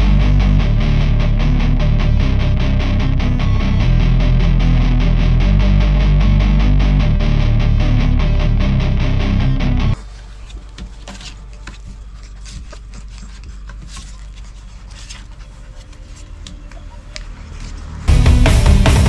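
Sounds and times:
loud distorted guitar music: 0:00.0 - 0:10.0, 0:18.1 - 0:19.0
low hum: 0:00.0 - 0:12.4
puppies scratching at camera: 0:10.0 - 0:18.0.

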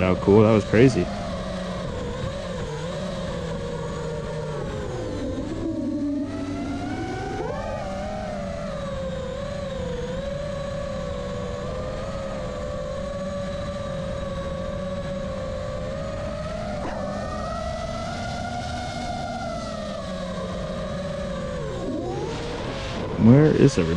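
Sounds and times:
quadcopter motors whining: 0:00.0 - 0:23.9
wind rush: 0:21.7 - 0:23.9.

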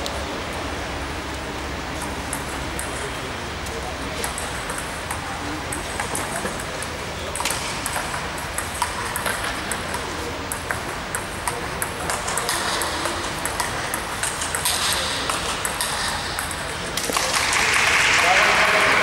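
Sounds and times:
table tennis ball clicking: 0:04.2 - 0:18.0.

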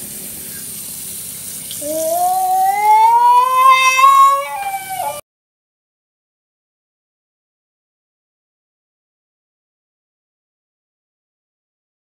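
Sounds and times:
child crying out: 0:01.8 - 0:05.2.

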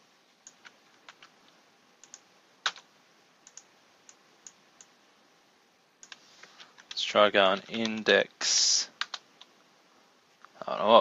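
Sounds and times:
keyboard typing: 0:00.4 - 0:01.3, 0:02.0 - 0:04.9, 0:06.0 - 0:08.1, 0:09.0 - 0:09.5.

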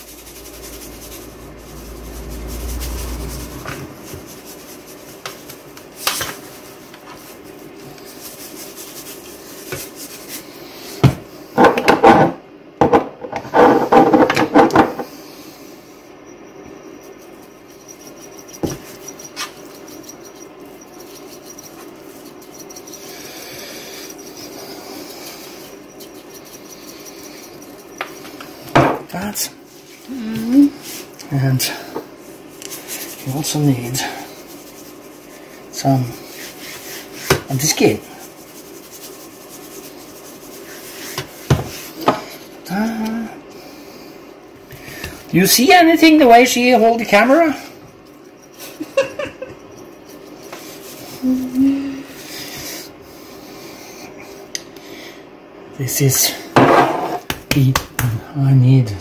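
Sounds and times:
spice grinder grinding: 0:00.0 - 0:11.1, 0:16.7 - 0:43.2, 0:44.8 - 0:53.0
seasoning shaken over meat: 0:00.0 - 0:11.5, 0:16.7 - 0:43.0, 0:45.2 - 0:51.5.

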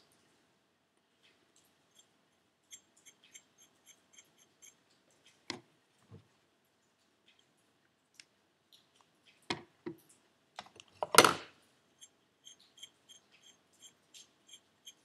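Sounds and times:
soft ticks of nut turning: 0:12.0 - 0:15.0.

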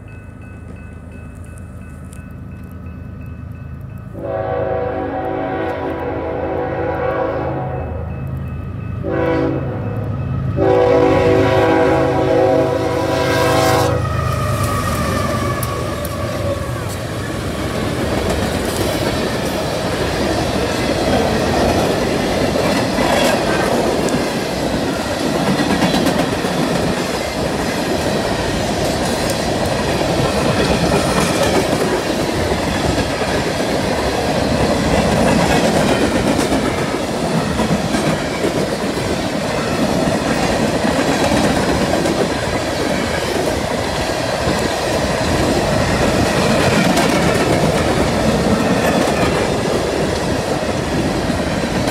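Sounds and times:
freight train wheels clacking on rails: 0:14.4 - 0:51.9.

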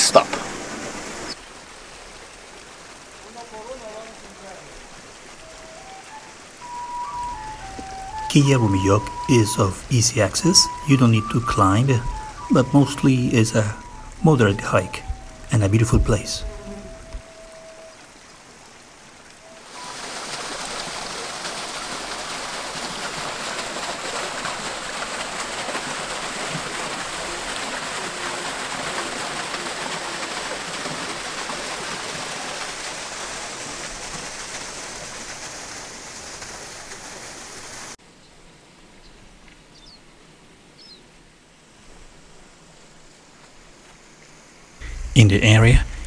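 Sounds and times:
waterfall rushing: 0:00.0 - 0:38.0
faint bird chirps: 0:39.0 - 0:40.0.

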